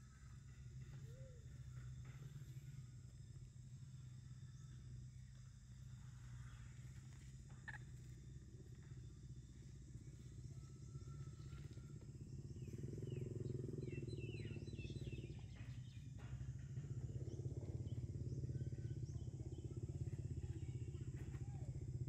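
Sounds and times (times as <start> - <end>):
low engine hum: 0.0 - 22.0.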